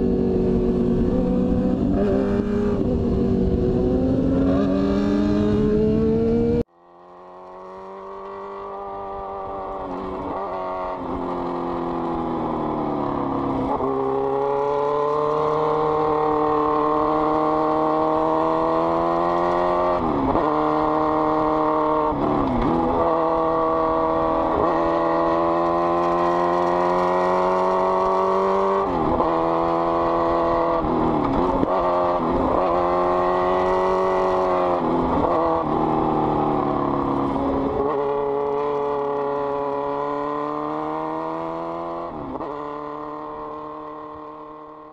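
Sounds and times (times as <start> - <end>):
motorcycle engine revving: 0.0 - 44.9.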